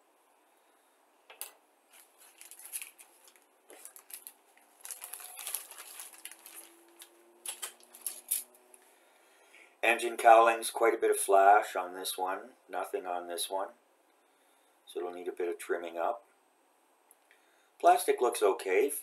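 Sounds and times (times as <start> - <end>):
plastic bag crinkling: 1.9 - 8.5.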